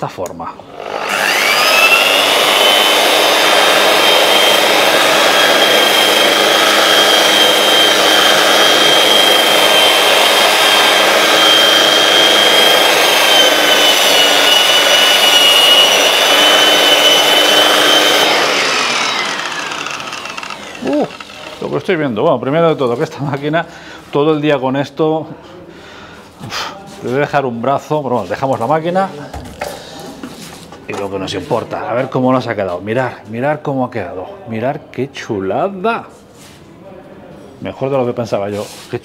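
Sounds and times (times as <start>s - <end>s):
electric sander whining: 0.7s - 21.8s.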